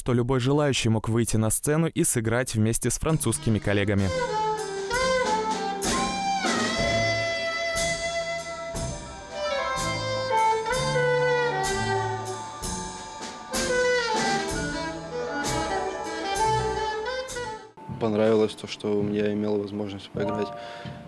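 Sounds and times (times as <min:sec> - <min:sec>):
saxophone melody: 0:03.1 - 0:17.8
low bass notes: 0:03.1 - 0:18.0
drum kit: 0:03.1 - 0:21.0.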